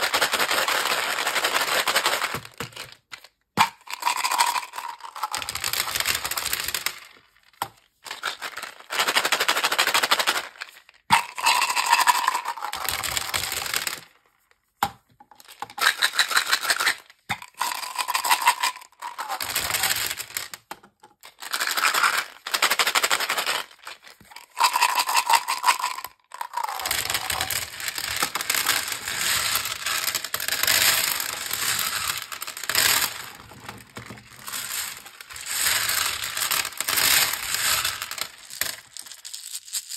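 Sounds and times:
pellets pushed around by hand: 21.8s - 39.3s
pellets clattering onto table: 23.1s - 39.9s.

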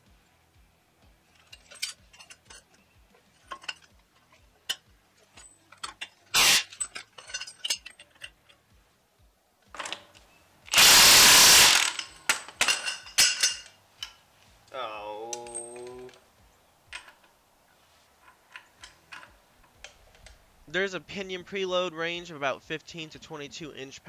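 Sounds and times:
metal clatter: 1.2s - 8.7s, 9.7s - 10.9s, 11.5s - 14.2s, 18.2s - 20.4s
ratchet clicking: 4.7s - 8.4s, 10.7s - 12.2s
impact wrench burst: 6.3s - 7.2s, 10.7s - 13.6s.

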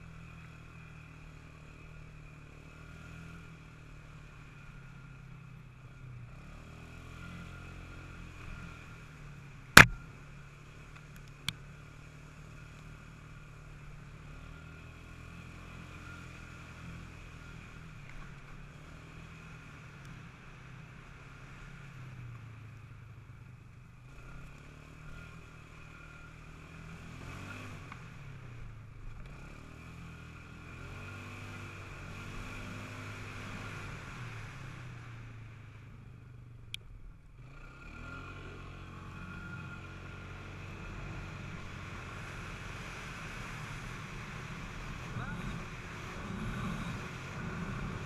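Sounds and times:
sharp click: 9.8s - 10.0s
quad engine revving: 37.5s - 48.0s.

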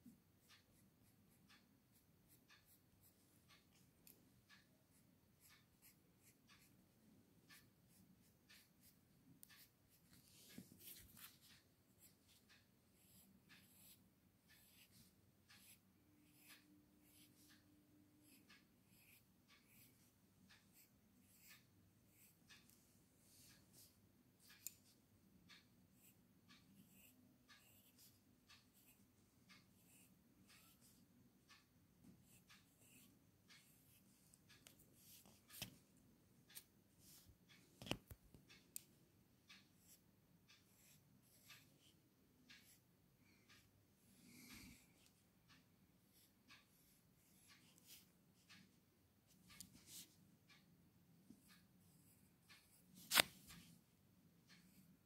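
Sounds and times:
pencil tick: 0.0s - 55.0s
pencil scratching on paper: 0.4s - 6.8s, 7.5s - 22.6s, 23.3s - 31.6s, 32.2s - 35.8s, 39.6s - 42.8s, 46.1s - 48.7s.

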